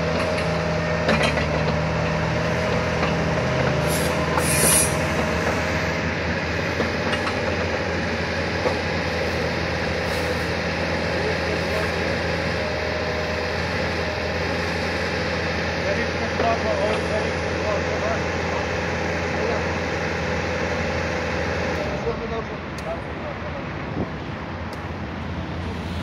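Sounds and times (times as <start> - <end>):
excavator diesel engine running: 0.0 - 26.0
short hiss: 3.8 - 5.1.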